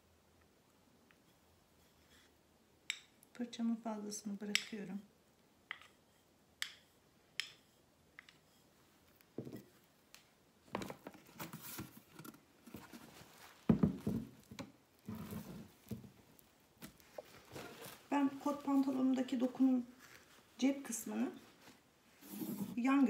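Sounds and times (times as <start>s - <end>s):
denim rustling: 10.7s - 23.0s.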